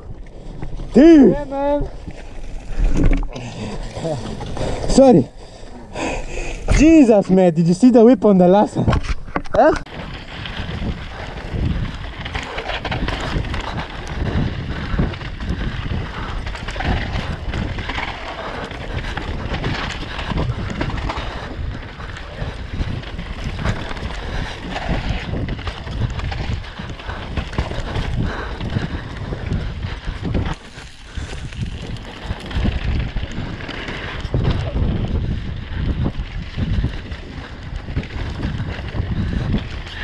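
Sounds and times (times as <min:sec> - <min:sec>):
wind buffeting microphone: 0:00.0 - 0:40.0
bike clattering over bumps: 0:08.8 - 0:40.0.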